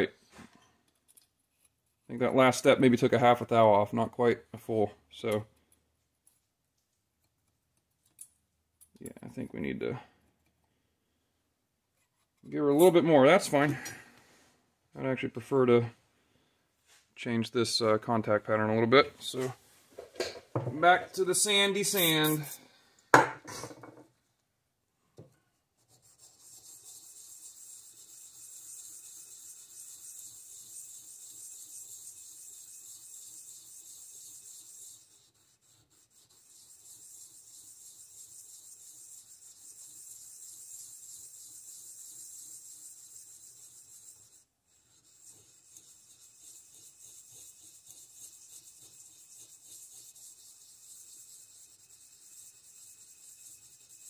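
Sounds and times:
sandpaper rubbing on metal: 21.2s - 22.6s, 25.8s - 54.0s.

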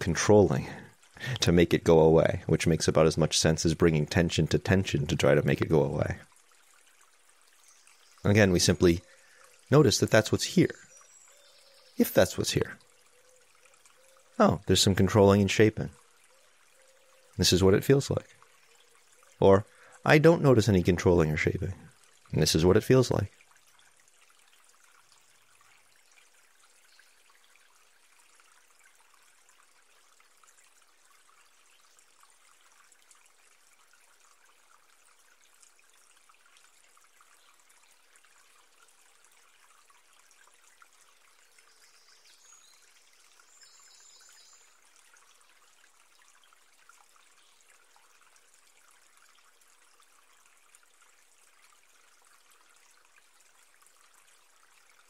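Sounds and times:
faint hiss with light crackle: 0.0s - 20.4s.

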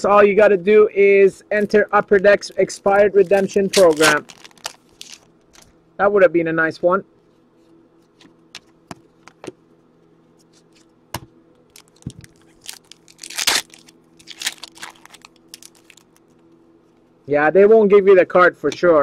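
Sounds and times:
faint steady hum: 0.0s - 19.0s
foil wrapper crinkling and tearing: 1.6s - 5.7s, 11.7s - 16.4s.

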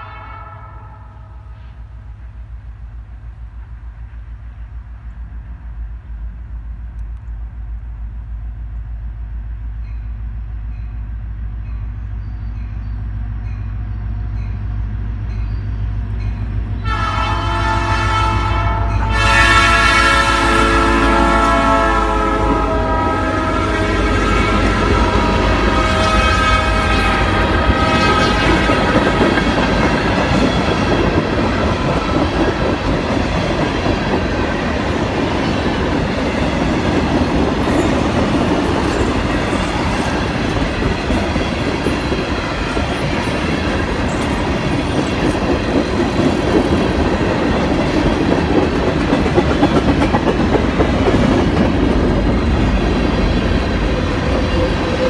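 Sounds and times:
freight train wheels rumbling: 0.0s - 55.0s
clickety-clack of rail joints: 24.5s - 55.0s.

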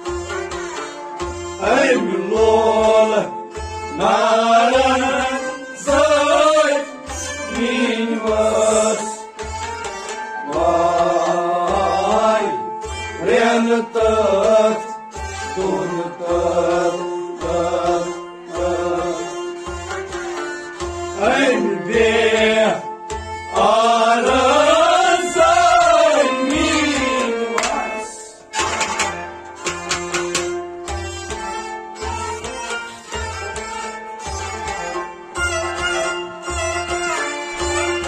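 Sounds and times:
harmonium drone: 0.0s - 38.0s
plucked string instrument: 0.0s - 38.0s
man singing: 1.6s - 9.3s, 10.4s - 14.9s, 15.6s - 19.4s, 21.2s - 22.9s, 23.5s - 28.4s.

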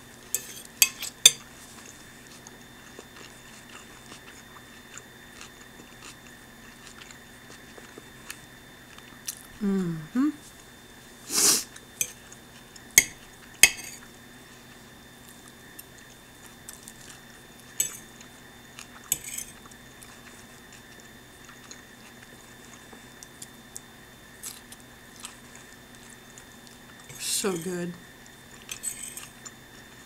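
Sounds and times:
fork clinking on plate: 0.4s - 1.4s, 13.0s - 14.0s, 17.8s - 18.0s, 19.2s - 19.5s, 28.7s - 29.3s.

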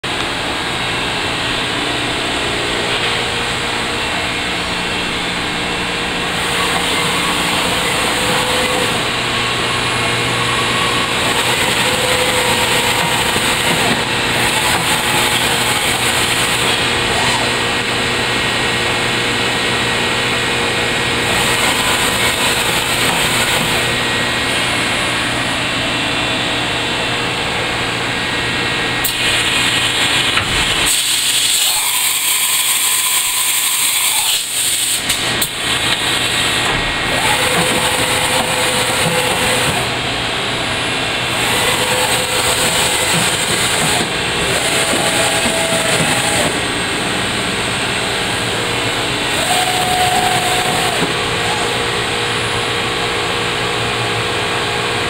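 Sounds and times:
machinery humming: 0.0s - 55.0s.

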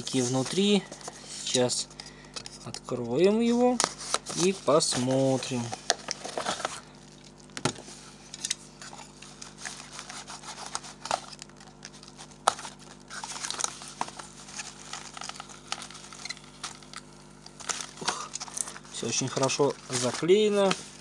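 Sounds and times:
paper sachets and box rustling: 0.0s - 8.0s, 9.1s - 21.0s.

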